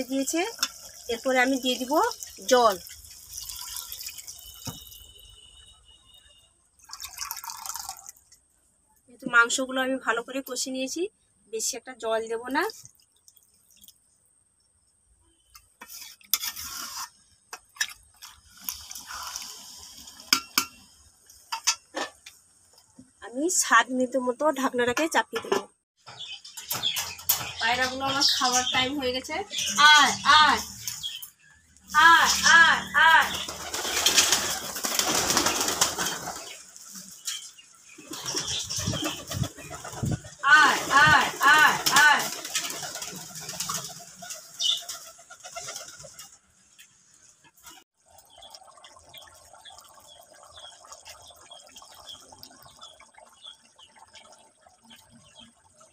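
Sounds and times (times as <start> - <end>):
liquid sloshing: 6.8 - 8.4
spatula scraping metal pan: 15.8 - 17.2
pigeon wings flapping: 33.3 - 36.6, 38.1 - 46.4.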